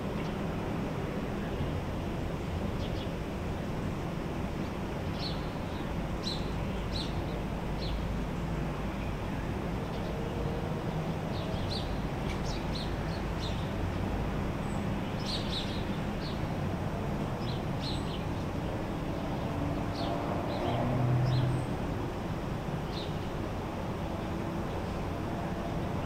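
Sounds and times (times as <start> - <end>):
vehicle passing: 18.9 - 22.2.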